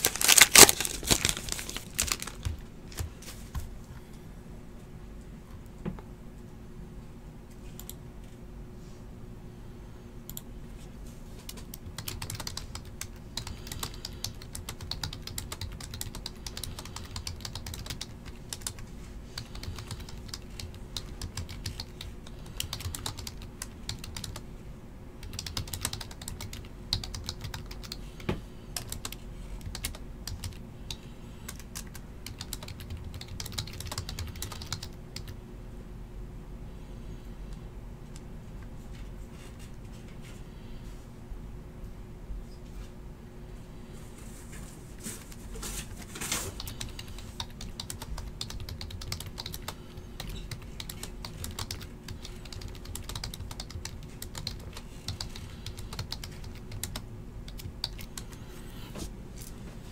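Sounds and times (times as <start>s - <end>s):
steady low hum: 0.0s - 59.9s
typing on computer keyboard: 11.5s - 18.8s, 19.4s - 24.4s, 25.2s - 28.0s, 28.8s - 35.4s, 46.6s - 58.3s.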